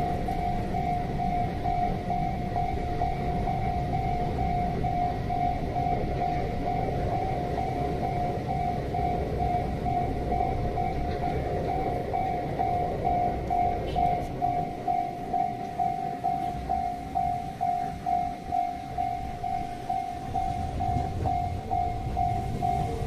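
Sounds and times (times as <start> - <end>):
level-crossing warning bell: 0.0 - 23.0.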